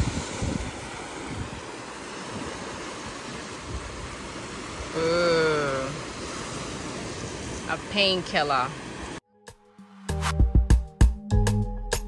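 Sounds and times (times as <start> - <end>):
steady rushing noise: 0.0 - 9.2
person's drawn-out vocal sound: 4.9 - 6.0.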